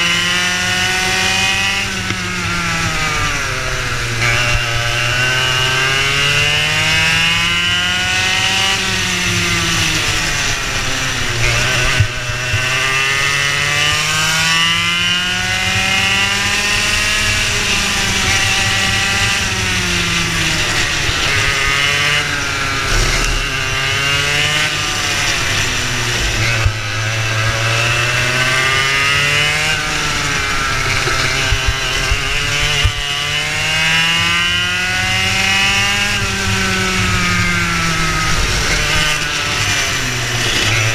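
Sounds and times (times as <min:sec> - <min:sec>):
racing kart engine: 0:00.0 - 0:40.9.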